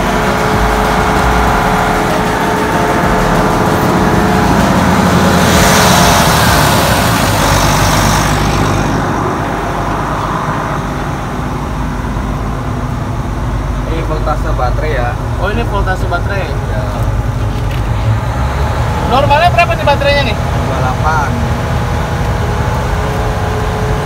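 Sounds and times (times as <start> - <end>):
excavator diesel engine running: 0.0 - 24.0.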